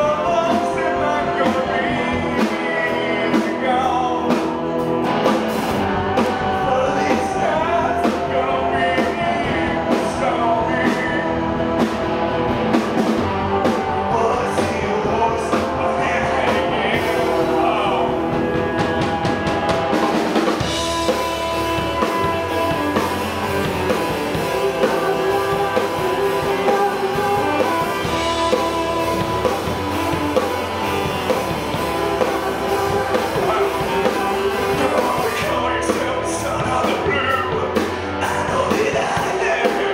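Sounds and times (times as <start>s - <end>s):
man singing: 0.0s - 12.0s, 13.5s - 39.9s
live rock band playing: 0.0s - 39.9s
saxophone: 11.2s - 38.2s.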